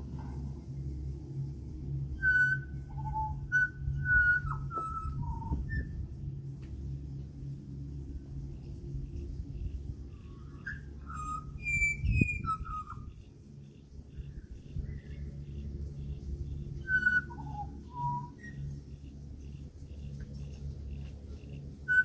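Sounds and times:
steady low hum: 0:00.0 - 0:22.0
bird whistled song: 0:02.2 - 0:06.0, 0:10.2 - 0:13.3, 0:14.1 - 0:18.8.

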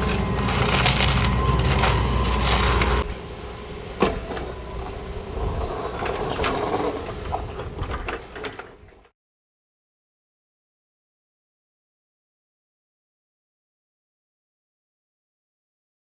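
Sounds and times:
brooms scraping grit on asphalt: 0:00.0 - 0:03.1, 0:04.5 - 0:08.4
excavator engine running: 0:00.0 - 0:09.1.

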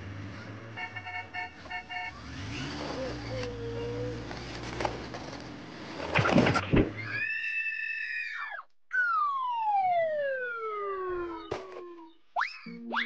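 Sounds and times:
whistle sound effects: 0:12.4 - 0:13.0.

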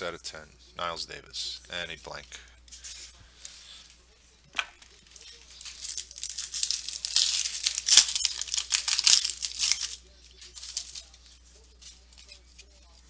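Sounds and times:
cards rustling: 0:04.8 - 0:13.0
foil wrapper tearing and crinkling: 0:05.2 - 0:11.1.

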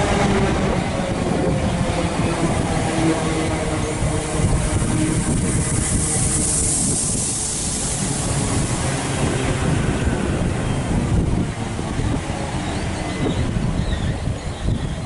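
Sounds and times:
train wheels rumbling on rail: 0:00.0 - 0:15.0
high hiss: 0:05.1 - 0:10.4.

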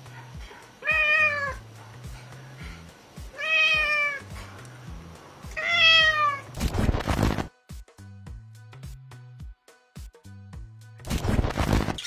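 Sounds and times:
background music with low beat: 0:00.0 - 0:12.0
cat meowing: 0:00.8 - 0:01.6, 0:03.3 - 0:04.3, 0:05.5 - 0:06.5
burst of static noise: 0:06.5 - 0:07.5, 0:11.0 - 0:12.0.

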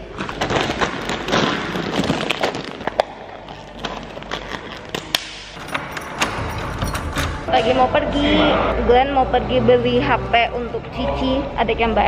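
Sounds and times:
plastic bag crinkling: 0:00.0 - 0:05.2.

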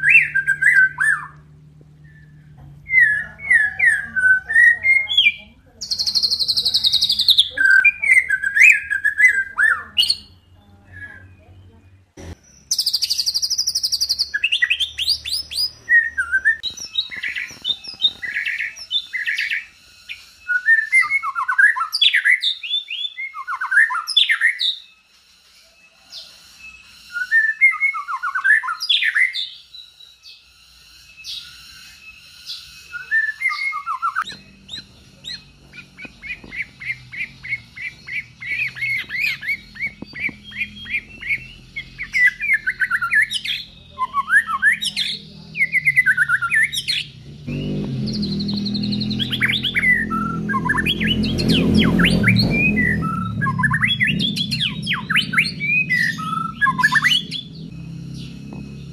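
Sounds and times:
birds singing whistled phrases: 0:00.0 - 0:58.9
short sharp repeated bird notes: 0:26.5 - 0:58.9.

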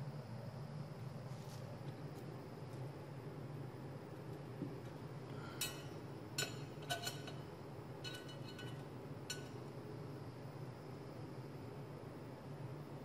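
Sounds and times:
ruler clinking on glass plate: 0:05.6 - 0:07.4, 0:08.0 - 0:09.6.

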